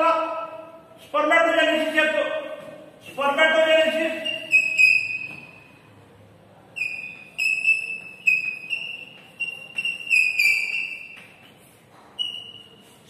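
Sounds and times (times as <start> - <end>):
chalk squeaking on chalkboard: 3.7 - 5.7, 6.8 - 13.0.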